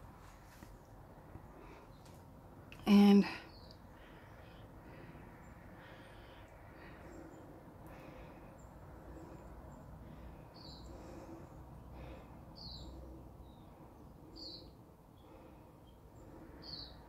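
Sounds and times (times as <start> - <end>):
low background rumble: 0.0 - 17.0
bird chirping: 2.8 - 4.7, 5.4 - 17.0.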